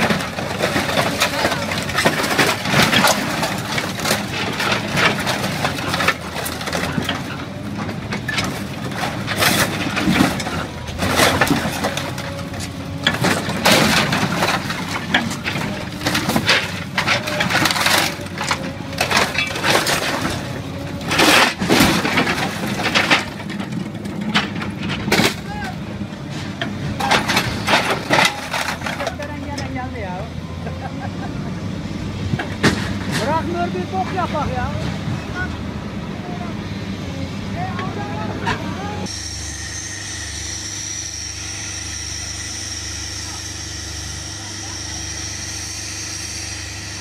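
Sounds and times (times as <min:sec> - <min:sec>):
sheet metal crashing and ripping: 0:00.0 - 0:25.8, 0:27.0 - 0:29.6
excavator engine drone: 0:00.0 - 0:47.0.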